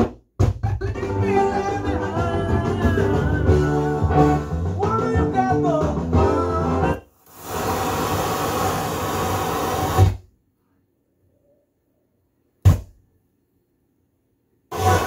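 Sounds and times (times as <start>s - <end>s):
radio static hiss: 7.3s - 10.1s.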